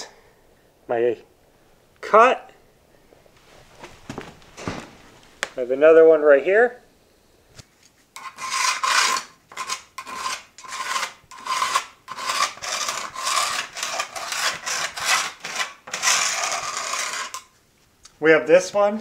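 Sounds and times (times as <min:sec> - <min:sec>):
pencil scratching along a level: 0:08.2 - 0:17.5.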